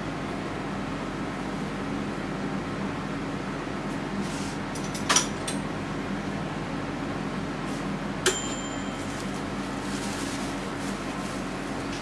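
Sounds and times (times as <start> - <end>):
steady low hum: 5.4 - 12.0.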